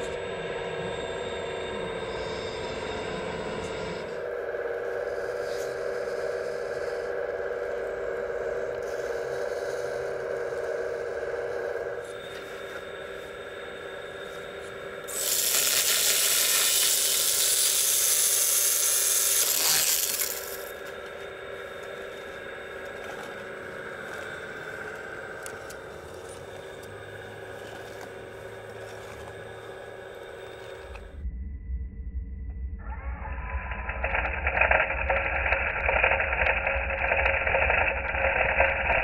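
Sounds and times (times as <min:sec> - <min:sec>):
small chainsaw high-pitched buzz: 0:00.0 - 0:31.1
hydraulic pump whine: 0:00.0 - 0:39.0.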